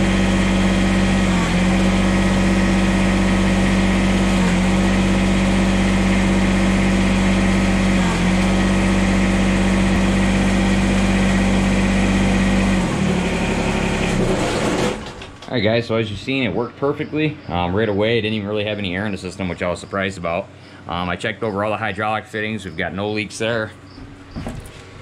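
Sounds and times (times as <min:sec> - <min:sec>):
diesel tractor engine idling: 0:00.0 - 0:25.0.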